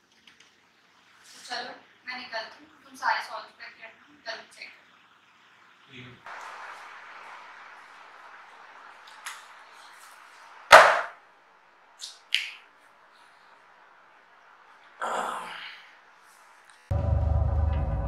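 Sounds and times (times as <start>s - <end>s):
sharp loud thump: 10.7s - 11.1s.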